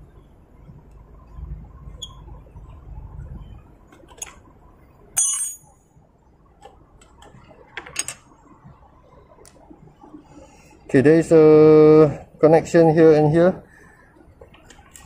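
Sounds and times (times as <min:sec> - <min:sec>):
metal parts clinking: 0:05.2 - 0:05.7.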